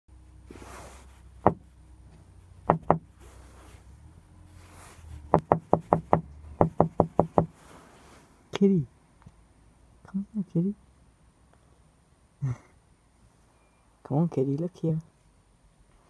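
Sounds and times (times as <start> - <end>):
knuckles knocking on hard surface: 1.4 - 1.6, 2.7 - 3.1, 5.3 - 7.5.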